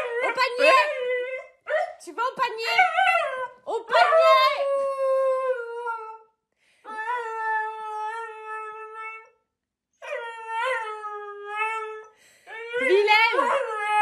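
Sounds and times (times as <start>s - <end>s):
dog howling: 0.0s - 1.9s.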